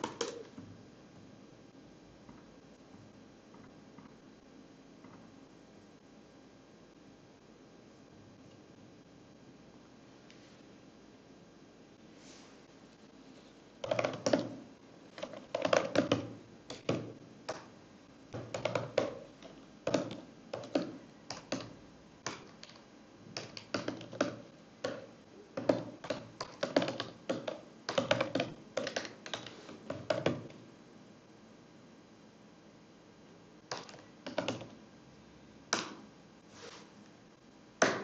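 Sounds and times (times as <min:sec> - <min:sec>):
typing on computer keyboard: 0:00.0 - 0:00.5, 0:13.8 - 0:17.7, 0:18.4 - 0:30.6, 0:33.7 - 0:34.8.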